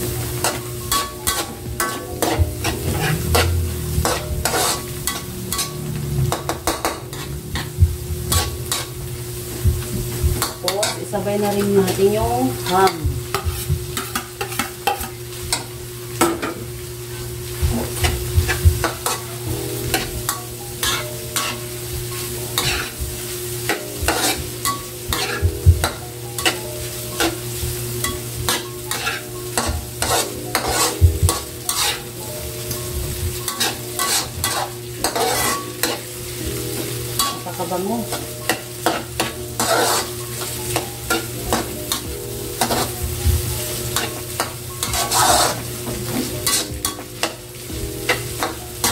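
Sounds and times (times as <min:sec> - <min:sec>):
food sizzling: 0:00.0 - 0:48.9
metal spatula scraping wok: 0:00.4 - 0:09.0, 0:19.9 - 0:21.8, 0:22.5 - 0:23.0, 0:23.7 - 0:27.4, 0:28.0 - 0:32.2, 0:33.4 - 0:36.1, 0:37.2 - 0:42.0, 0:42.6 - 0:43.0, 0:43.7 - 0:47.3.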